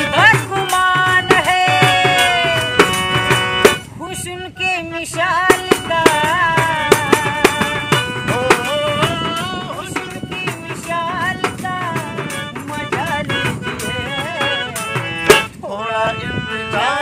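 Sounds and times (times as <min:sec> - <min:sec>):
percussion beat: 0:00.0 - 0:04.0, 0:05.2 - 0:15.6.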